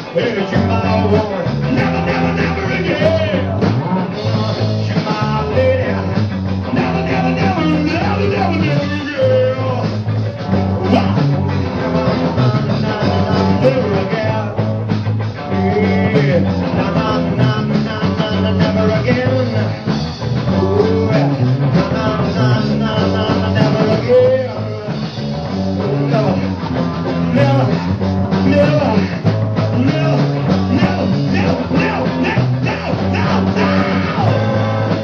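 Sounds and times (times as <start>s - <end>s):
bass guitar line: 0.0s - 35.0s
electric guitars: 0.0s - 35.0s
steady drums: 0.0s - 35.0s.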